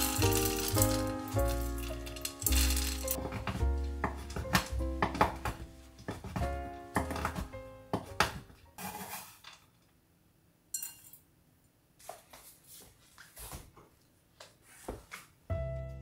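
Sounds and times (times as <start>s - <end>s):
soft background music: 0.0s - 8.8s, 15.5s - 16.0s.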